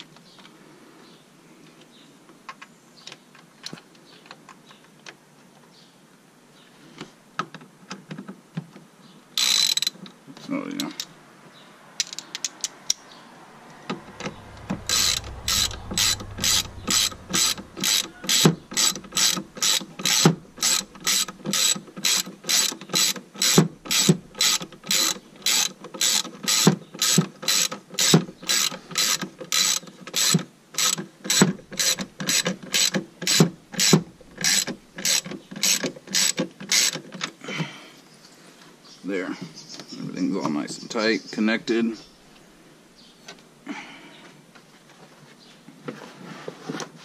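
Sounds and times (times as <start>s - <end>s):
ratchet wrench clicking: 9.4s - 10.0s, 14.9s - 37.0s.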